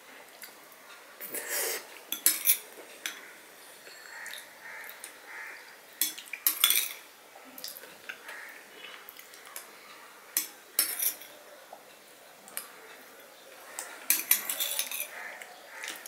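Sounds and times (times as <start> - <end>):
metal spoon scraping a bowl: 14.1 - 15.3.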